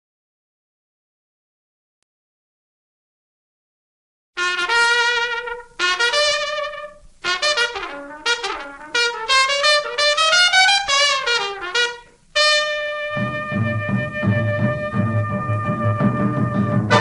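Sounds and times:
jazzy trumpet solo: 4.4s - 17.0s.

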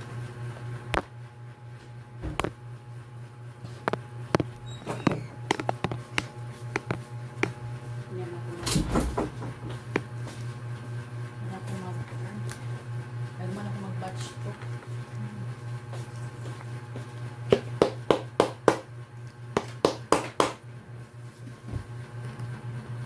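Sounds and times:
steady low hum: 0.0s - 23.0s
screwdriver clicks and knocks on metal: 4.4s - 7.6s.

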